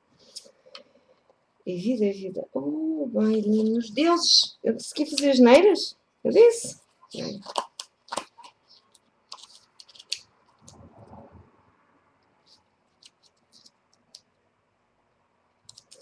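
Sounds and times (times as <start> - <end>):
soft paper rustle: 6.8 - 11.5, 12.4 - 14.2
paper clicks and taps: 15.7 - 16.0.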